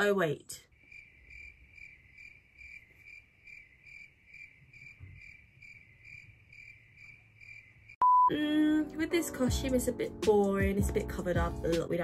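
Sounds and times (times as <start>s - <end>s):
cricket chirping: 0.7s - 8.1s.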